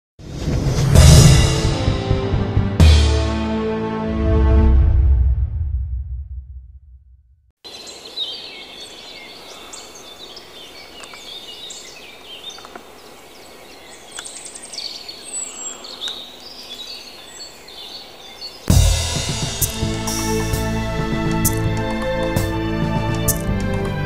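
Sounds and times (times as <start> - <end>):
birds chirping and singing: 7.7 - 24.0.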